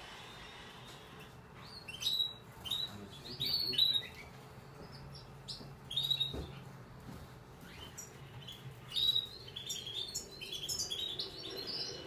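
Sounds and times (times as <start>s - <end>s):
canary chick cheeping: 1.6s - 6.7s, 7.6s - 12.0s.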